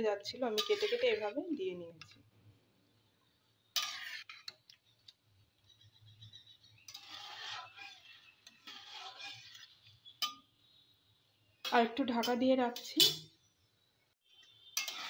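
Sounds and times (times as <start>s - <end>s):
metal spatula scraping pan: 0.2s - 1.5s, 3.7s - 4.6s, 5.6s - 10.9s, 14.3s - 15.0s.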